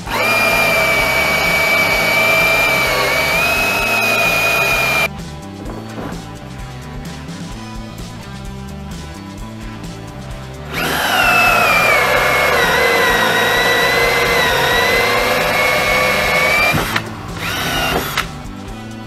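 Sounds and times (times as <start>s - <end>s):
cordless drill boring into plastic: 0.0s - 5.1s, 10.7s - 18.3s.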